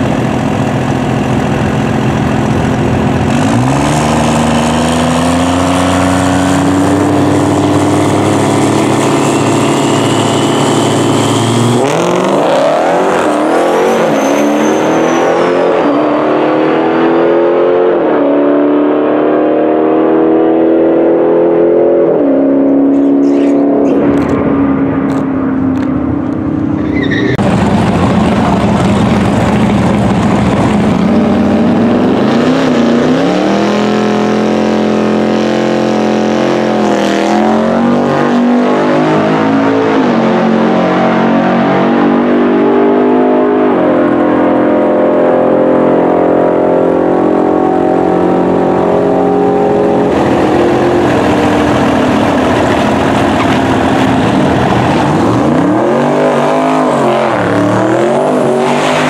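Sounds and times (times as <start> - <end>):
vehicle engine running: 0.0 - 12.7, 27.4 - 32.3, 47.4 - 55.8
diesel pickup idling and revving: 0.0 - 17.0, 22.7 - 40.5, 43.4 - 59.0.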